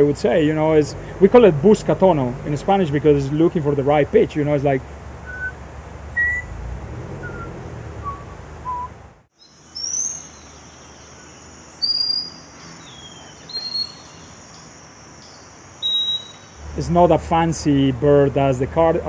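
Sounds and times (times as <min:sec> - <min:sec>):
person whistling: 0:07.2 - 0:08.9
bird high whistles: 0:08.1 - 0:16.6.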